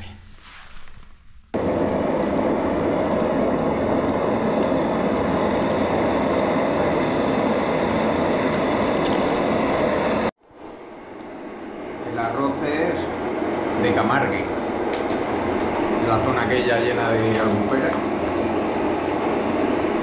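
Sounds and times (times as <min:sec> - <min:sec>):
water pouring into a pot: 0:01.6 - 0:10.3.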